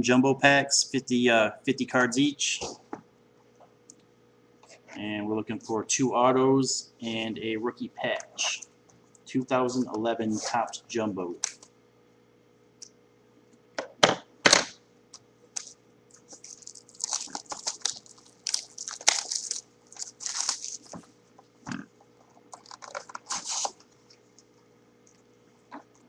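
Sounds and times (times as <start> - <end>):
foil packs crinkling: 15.6 - 21.1, 22.4 - 24.0.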